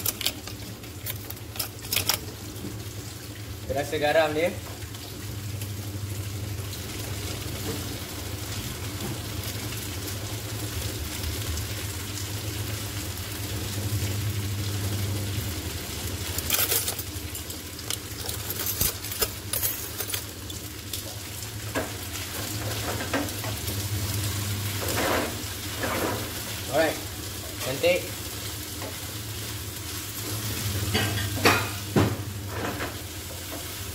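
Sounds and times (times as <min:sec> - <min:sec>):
spaghetti sizzling in a pan: 0:20.2 - 0:33.9.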